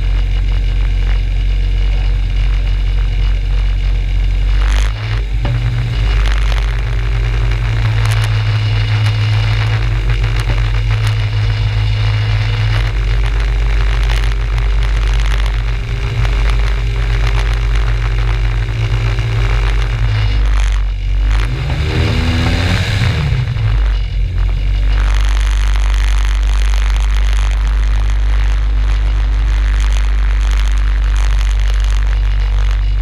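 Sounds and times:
two-stroke engine running: 0.0s - 33.0s
propeller wash rushing: 5.2s - 29.7s.

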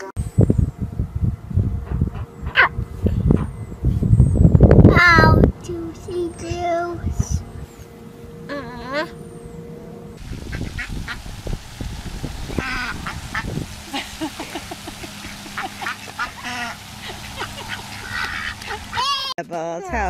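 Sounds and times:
ducks quacking: 10.2s - 19.3s.

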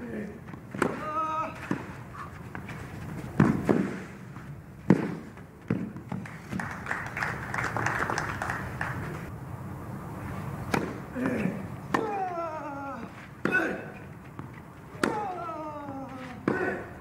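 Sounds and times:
racket hitting tennis ball: 0.5s - 6.6s, 10.6s - 12.4s, 13.0s - 17.0s
crowd applause: 6.2s - 9.3s.

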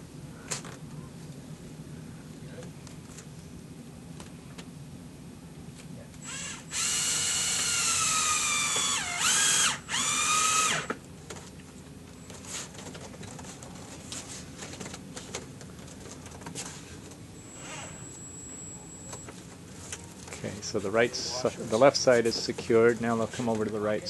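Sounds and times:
cordless drill driving a screw: 6.2s - 10.9s.

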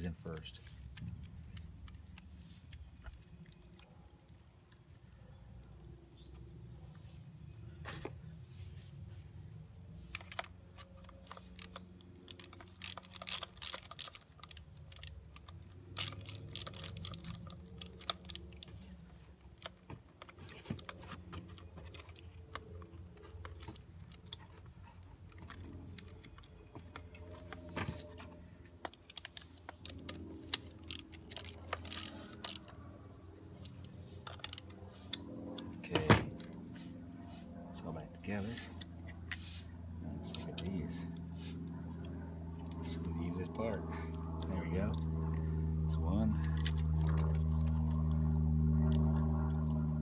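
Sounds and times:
small metal parts clicking and rattling: 0.8s - 4.9s, 10.0s - 27.7s, 28.6s - 32.9s, 33.5s - 36.7s, 46.3s - 49.8s.

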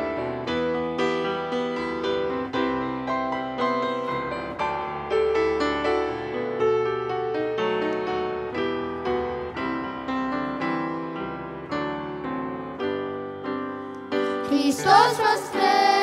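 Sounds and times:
solo grand piano: 0.0s - 16.0s.

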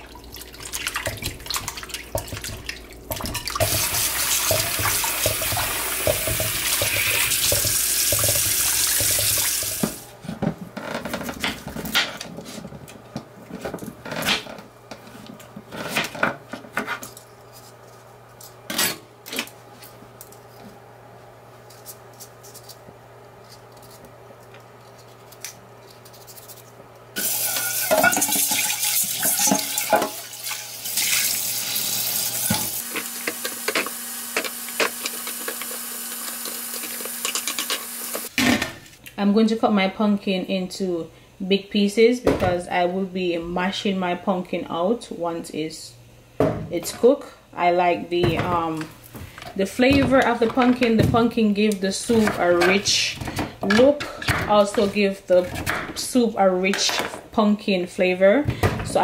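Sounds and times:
water splashing into pot: 27.2s - 32.2s.

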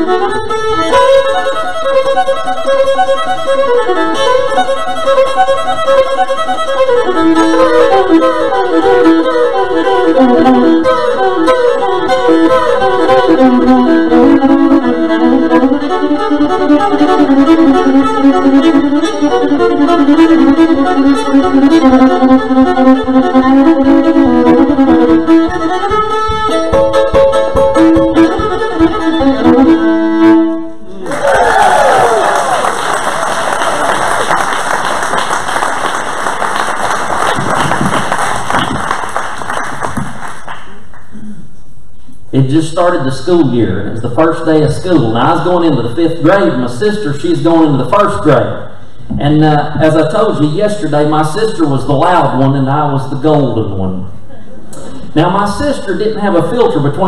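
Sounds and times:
solo fiddle playing fast tune: 0.0s - 31.0s, 42.4s - 53.8s, 55.0s - 57.0s.

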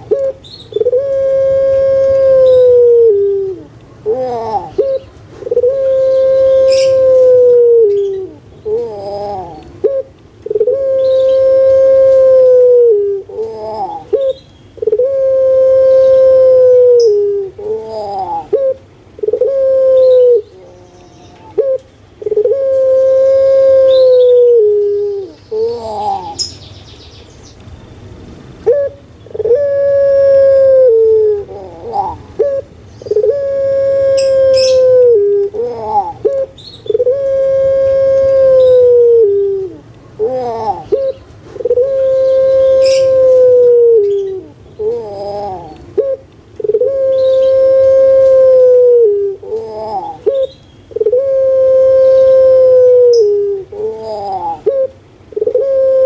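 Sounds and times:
dove cooing: 0.0s - 26.5s, 28.6s - 56.0s.

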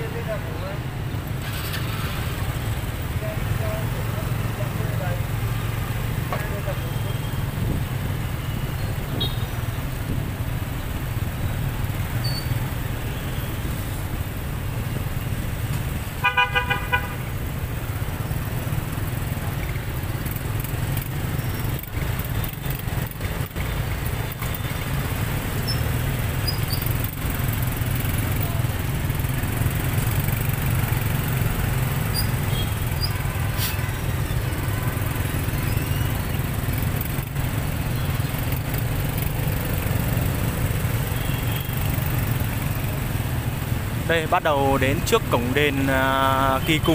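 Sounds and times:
road noise: 0.0s - 46.9s
vehicle horn short beeps: 9.1s - 9.6s, 41.2s - 41.8s.

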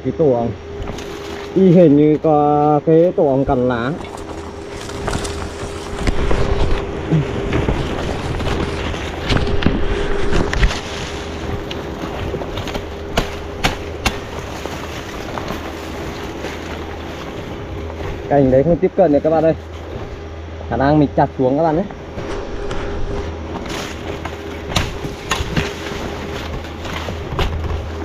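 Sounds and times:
steady low hum: 0.0s - 28.0s
wind noise on microphone: 4.1s - 18.3s.

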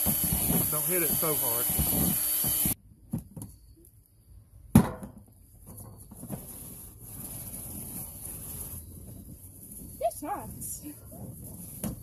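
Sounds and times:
cordless drill motor running: 0.0s - 2.8s.

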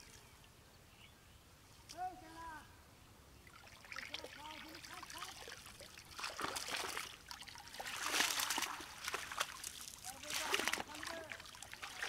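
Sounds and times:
legs wading through water: 3.4s - 12.0s
water splashing off net: 3.6s - 12.0s.

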